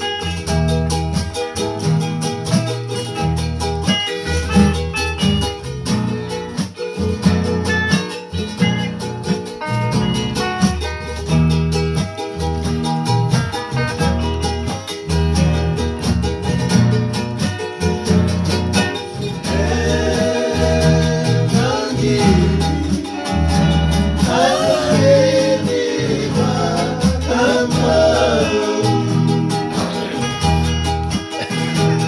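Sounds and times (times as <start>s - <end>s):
acoustic guitars and ukulele strumming: 0.0s - 32.0s
man singing: 19.4s - 30.7s.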